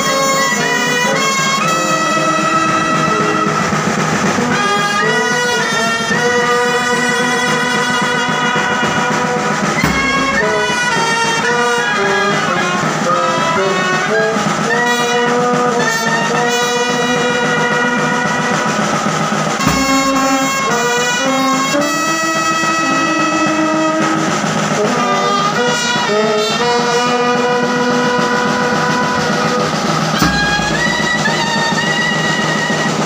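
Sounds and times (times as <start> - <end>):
brass band playing: 0.0 - 33.0
heavy bass drum strikes: 1.8 - 21.6, 27.0 - 32.9.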